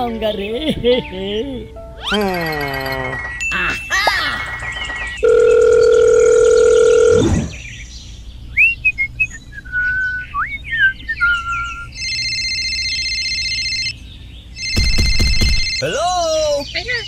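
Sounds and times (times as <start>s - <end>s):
phone ringtone trill: 2.0s - 7.2s, 11.9s - 14.0s, 14.6s - 16.1s
steady telephone tone: 4.9s - 7.3s, 12.0s - 13.9s.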